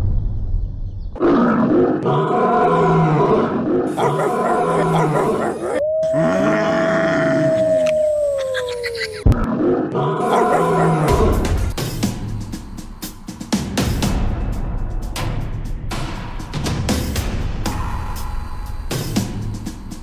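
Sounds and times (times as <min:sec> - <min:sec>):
monster roaring and growling: 0:01.2 - 0:11.7
held tone sinking in pitch: 0:05.8 - 0:09.2.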